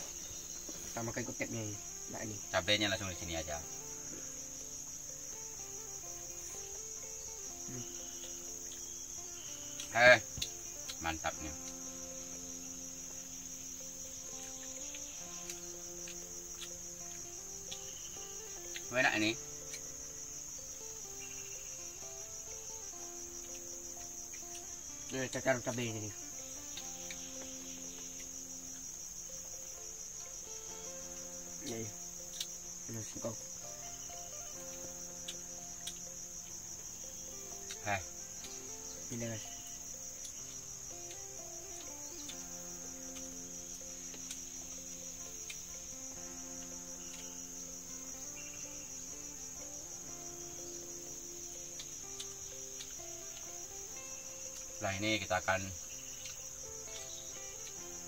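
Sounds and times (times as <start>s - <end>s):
crickets trilling: 0.0s - 58.0s
high-pitched insect chorus: 0.0s - 58.0s.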